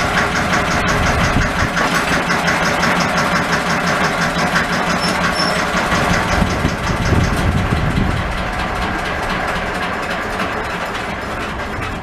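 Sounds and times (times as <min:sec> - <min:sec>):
tractor diesel engine idling: 0:00.0 - 0:12.0.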